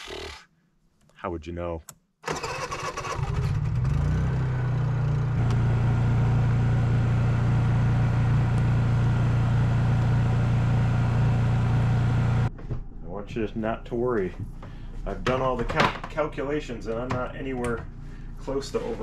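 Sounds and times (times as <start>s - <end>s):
generator engine starting and humming: 2.2s - 13.8s.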